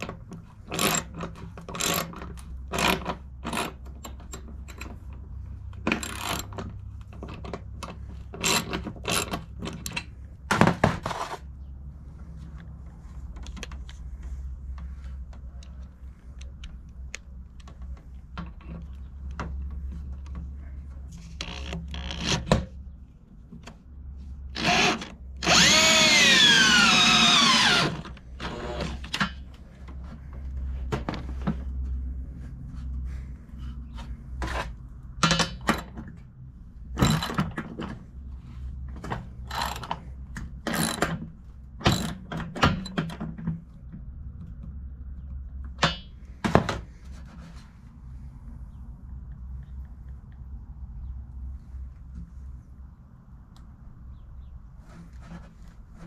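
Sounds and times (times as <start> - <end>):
power drill running: 24.6 - 29.0.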